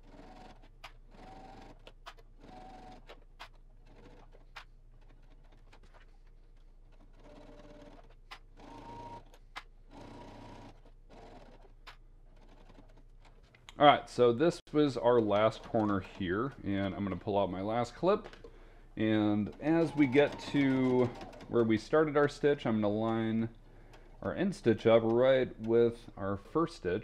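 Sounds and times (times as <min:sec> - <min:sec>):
sewing machine stitching: 0:00.0 - 0:13.6, 0:14.9 - 0:26.8
sharp clicks: 0:01.8 - 0:02.3.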